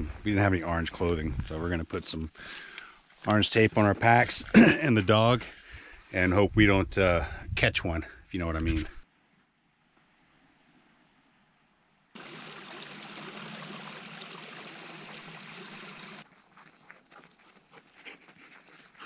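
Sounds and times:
creek water rushing: 12.2s - 16.2s
footsteps crunching on gravel: 16.2s - 19.0s.

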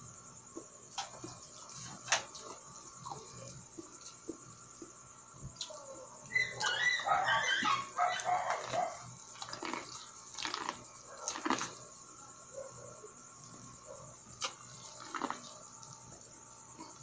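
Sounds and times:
dog barking and yelping: 6.3s - 9.1s.

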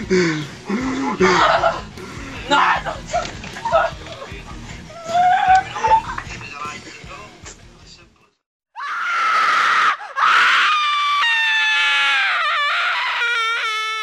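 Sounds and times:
person screaming: 2.4s - 4.0s, 4.9s - 6.0s, 8.8s - 14.0s.

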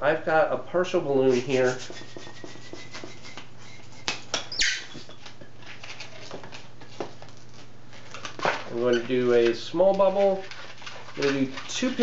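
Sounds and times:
balloon rubbing and clicking: 1.3s - 5.1s
balloon squeak: 1.3s - 5.3s.

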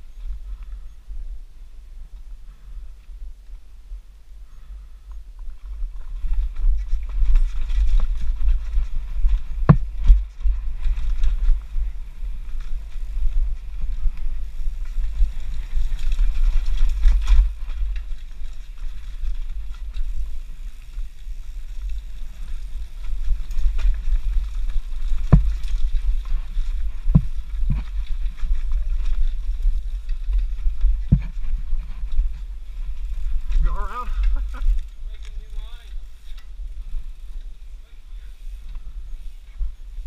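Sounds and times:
bike tyres on dirt trail: 0.0s - 40.0s
wind buffeting microphone: 0.0s - 40.0s
bike knocking over bumps: 6.5s - 11.7s, 22.7s - 34.8s.

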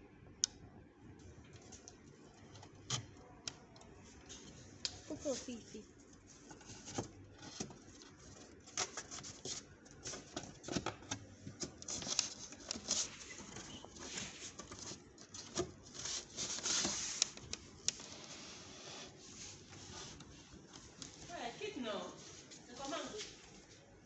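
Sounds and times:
rubbing or sliding on wood: 18.0s - 21.4s.

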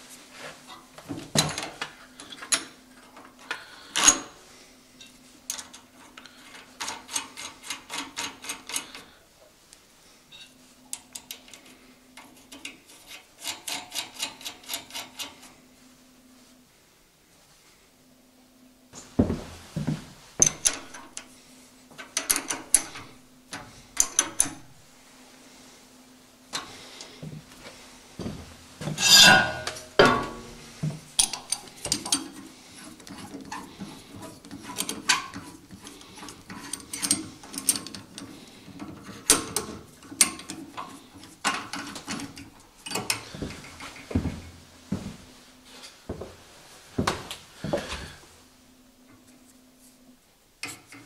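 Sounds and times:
metal tools clicking and scraping: 5.0s - 9.1s, 10.3s - 15.5s, 22.0s - 24.6s, 29.0s - 30.4s, 31.2s - 44.1s.

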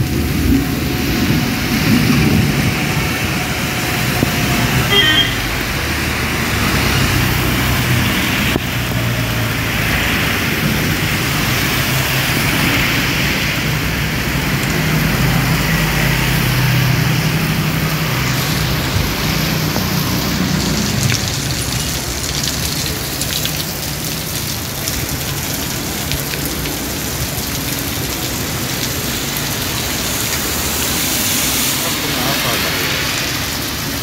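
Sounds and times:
heavy rain falling on road: 0.0s - 34.0s.

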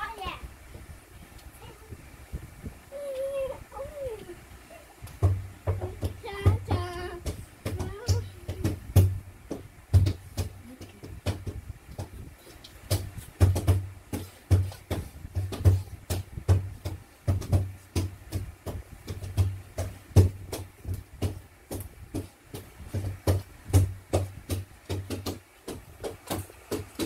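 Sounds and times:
percussive dance beat: 5.2s - 12.1s.

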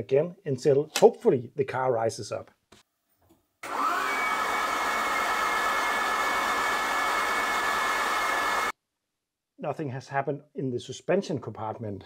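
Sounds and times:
starter motor cranking engine: 3.6s - 8.7s.

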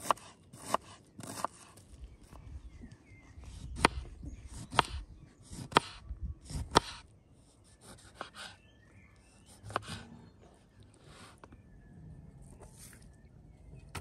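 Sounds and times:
knife slicing pepper: 0.0s - 1.8s.

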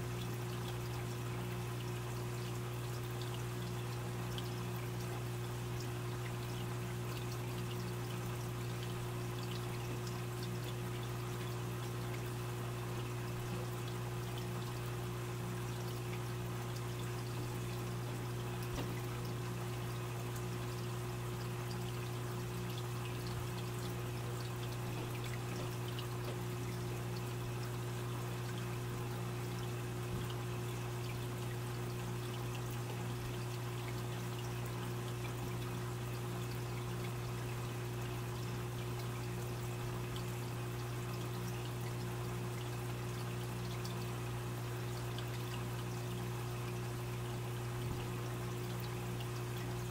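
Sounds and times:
aquarium water trickling: 0.0s - 49.9s
steady low hum: 0.0s - 49.9s.

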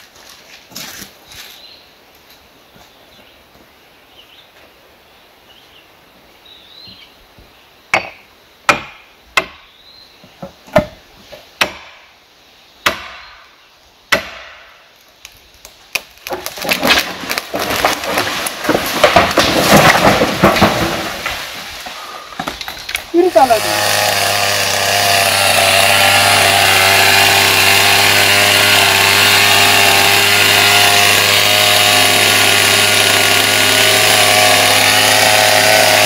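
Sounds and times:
tree crashing through branches: 16.0s - 36.0s.

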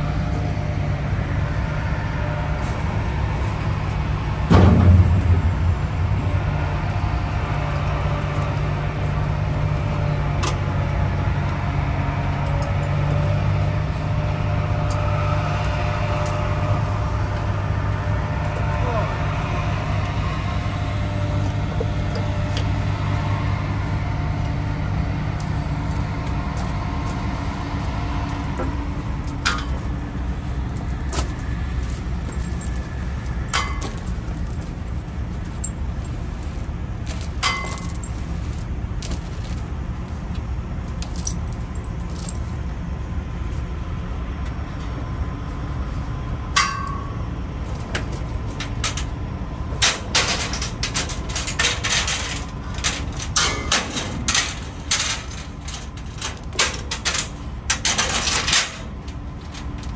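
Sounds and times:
diesel engine idling: 0.0s - 46.6s
steel chains clinking: 6.8s - 9.2s, 12.4s - 19.1s, 25.3s - 42.5s, 46.6s - 59.9s.

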